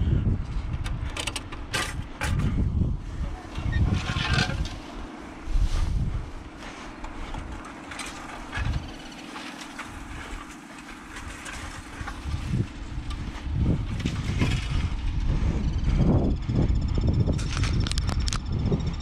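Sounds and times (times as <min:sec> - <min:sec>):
footsteps through grass: 0:05.3 - 0:14.3.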